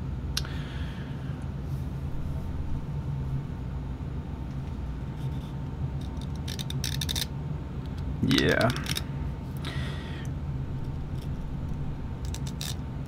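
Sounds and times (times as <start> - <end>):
low background rumble: 0.0 - 13.0.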